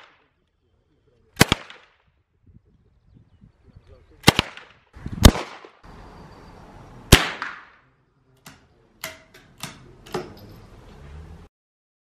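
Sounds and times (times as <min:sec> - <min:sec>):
sharp cracks: 0:00.0 - 0:00.3, 0:01.4 - 0:02.1, 0:04.2 - 0:05.8, 0:07.1 - 0:09.9
handgun gunshots with echo: 0:07.1 - 0:07.8.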